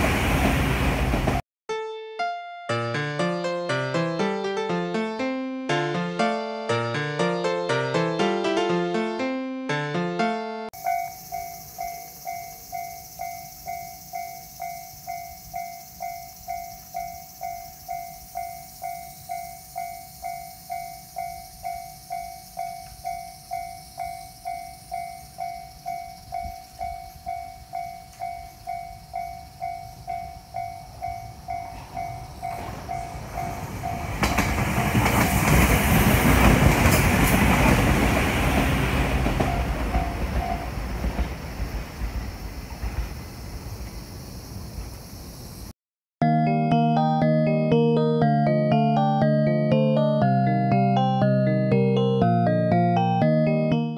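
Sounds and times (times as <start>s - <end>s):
train wheels clattering on rails: 0.0s - 1.4s, 10.8s - 44.0s
level-crossing alarm dinging: 10.8s - 34.6s, 39.3s - 40.8s.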